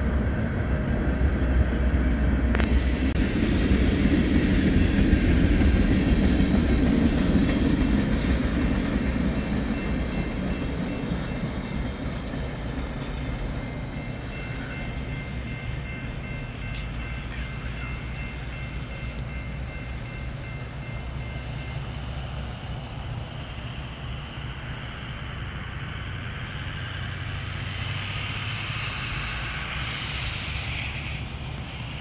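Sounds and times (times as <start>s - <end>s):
train wheels rumbling on rail: 0.0s - 32.0s
faint high ringing tone: 13.4s - 22.5s.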